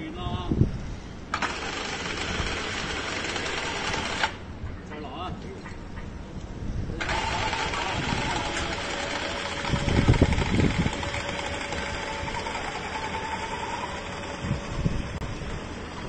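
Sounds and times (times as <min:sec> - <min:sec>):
hoist motor whine: 0:01.3 - 0:04.4, 0:06.9 - 0:16.0.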